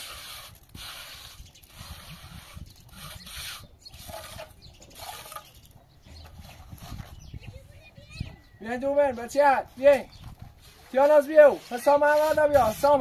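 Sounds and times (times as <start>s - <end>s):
trowel scraping wet mortar: 0.0s - 5.7s, 10.6s - 13.0s.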